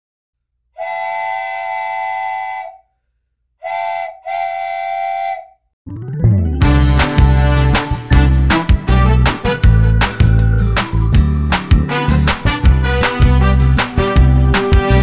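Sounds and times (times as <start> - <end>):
chord whistle blasts: 0.8 - 2.9, 3.6 - 5.6
music with rising sweep: 5.9 - 15.0.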